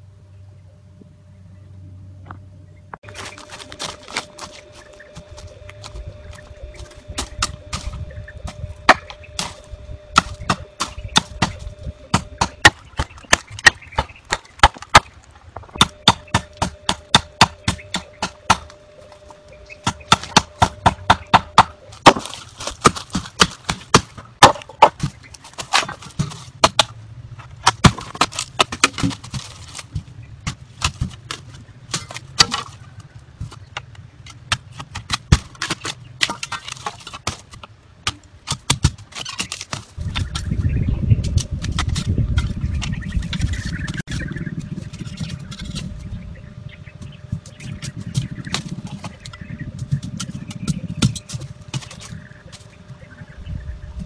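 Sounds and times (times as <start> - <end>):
machete chopping bamboo: 8.9 - 15.1, 15.8 - 18.8, 19.8 - 27.0, 27.6 - 32.8, 33.4 - 40.5.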